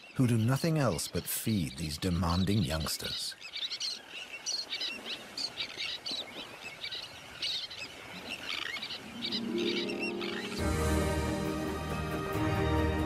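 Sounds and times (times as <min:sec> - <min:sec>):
tern colony calling: 0:08.3 - 0:11.0
soft music: 0:09.0 - 0:13.0.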